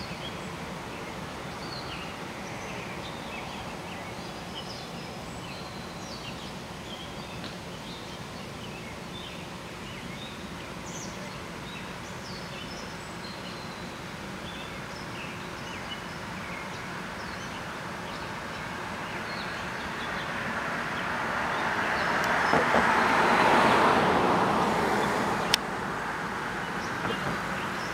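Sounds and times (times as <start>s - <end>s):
vehicle passing by: 19.6s - 27.9s.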